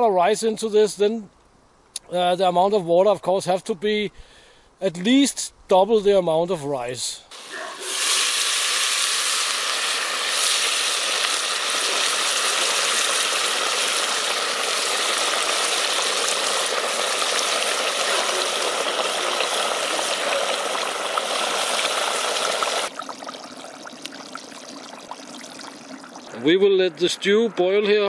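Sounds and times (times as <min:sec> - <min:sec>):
water pouring into a pot: 0:07.3 - 0:26.4.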